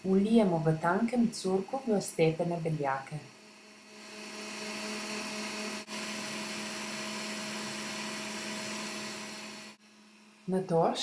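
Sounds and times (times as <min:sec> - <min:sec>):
stand mixer motor whirring: 0:03.5 - 0:09.8.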